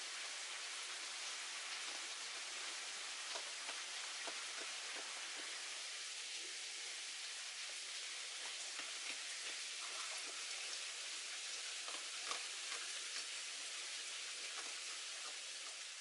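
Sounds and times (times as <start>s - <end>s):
rain pattering: 0.0s - 16.0s
small ticks: 1.8s - 5.6s, 11.7s - 15.9s.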